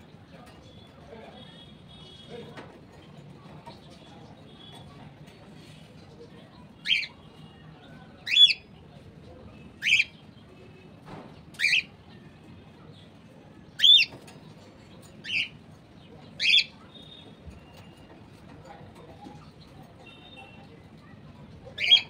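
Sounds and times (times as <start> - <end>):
cockatiel chirping calls: 16.4 - 17.1.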